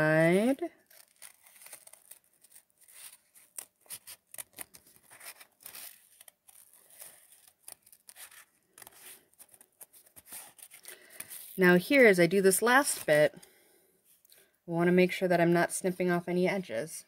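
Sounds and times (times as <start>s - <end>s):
scissors snipping paper: 0.8s - 11.3s.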